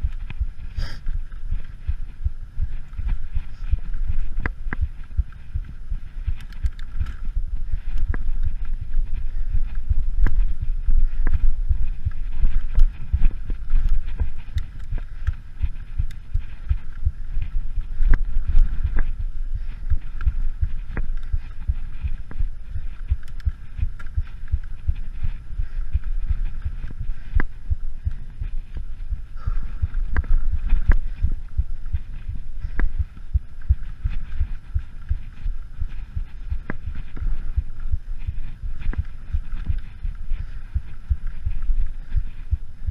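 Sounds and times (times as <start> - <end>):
wind buffeting: 0.0 - 42.9
bike clicks and rattles: 4.3 - 25.8.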